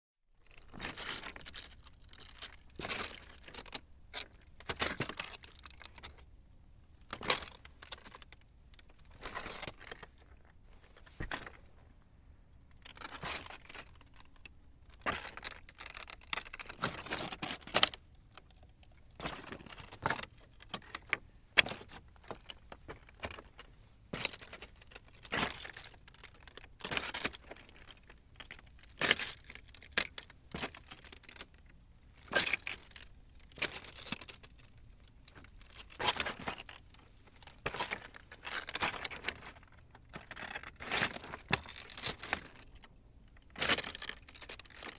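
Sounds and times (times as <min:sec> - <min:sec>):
footsteps on loose rocks: 0:11.0 - 0:11.7, 0:35.3 - 0:42.6.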